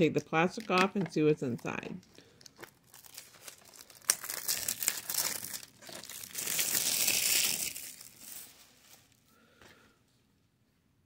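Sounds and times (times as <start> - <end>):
plastic wrap crinkling and tearing: 1.6 - 9.2.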